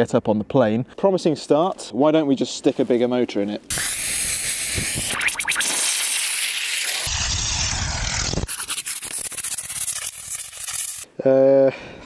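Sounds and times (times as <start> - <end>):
rapid crackling: 3.7 - 11.1
rocket motor rushing hiss: 3.7 - 11.1.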